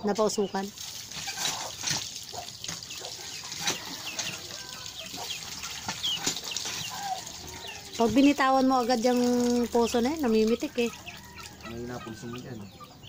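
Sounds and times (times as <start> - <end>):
water splashing into metal basin: 0.2 - 12.5
fish being rubbed and rinsed: 0.6 - 12.3
chicken calls: 1.2 - 9.2, 9.8 - 13.0.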